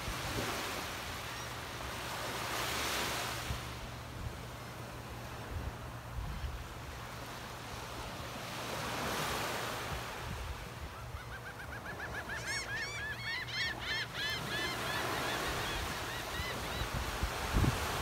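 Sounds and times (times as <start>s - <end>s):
small waves washing onto sand: 0.0s - 11.0s, 14.4s - 18.0s
gull calling quick notes: 11.2s - 15.4s.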